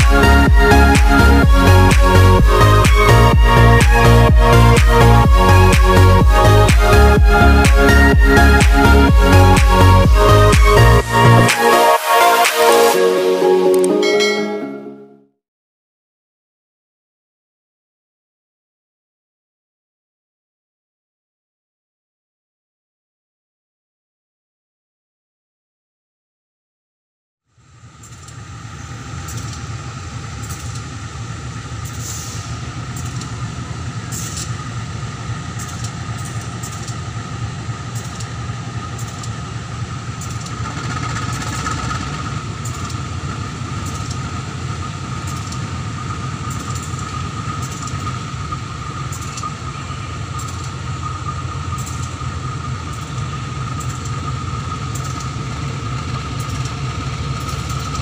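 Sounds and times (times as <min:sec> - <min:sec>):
constant high whine: 0:00.0 - 0:13.0, 0:27.5 - 0:58.0
deep locomotive engine drone: 0:00.0 - 0:14.9, 0:27.5 - 0:58.0.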